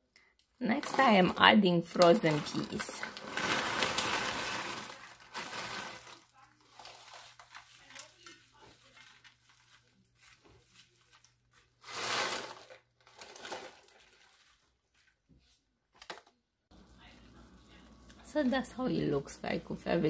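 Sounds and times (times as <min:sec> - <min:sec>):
plastic bag crinkling: 0:00.7 - 0:15.2
peas rattling into a pan: 0:00.8 - 0:07.2.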